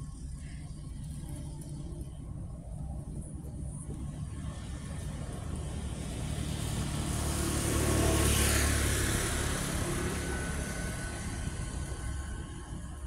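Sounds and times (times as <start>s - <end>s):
vehicle driving past: 4.2s - 13.0s.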